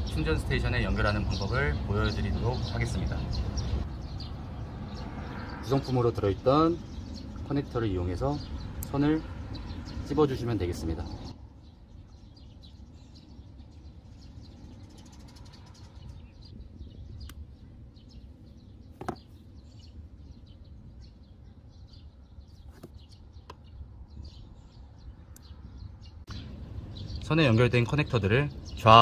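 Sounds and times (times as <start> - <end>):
sharp knock: 19.0 - 19.3.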